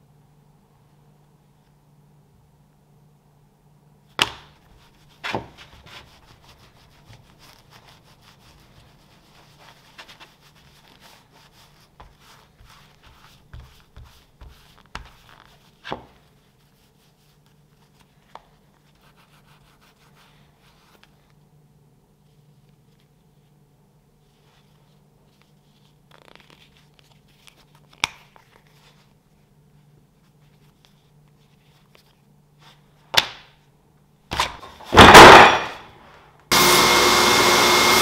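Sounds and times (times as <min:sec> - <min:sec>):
hand rubbing leather: 0:04.6 - 0:21.3.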